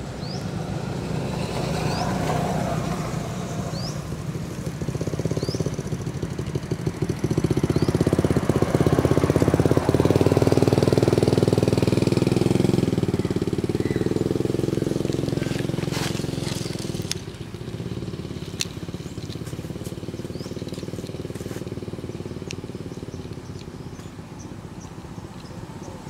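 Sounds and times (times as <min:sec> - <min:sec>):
vehicle engine droning: 0:00.0 - 0:26.0
sharp clicks: 0:22.4 - 0:24.2.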